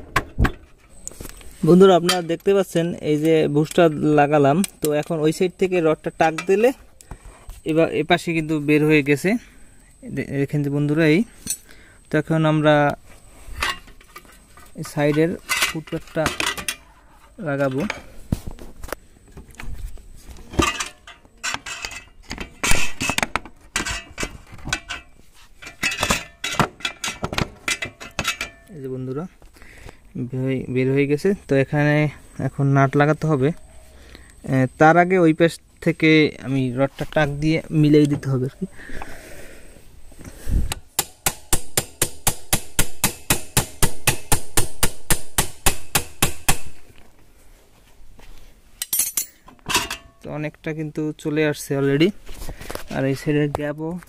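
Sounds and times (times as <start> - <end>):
metal parts clanking: 13.5 - 16.9, 20.5 - 28.8, 48.8 - 50.2.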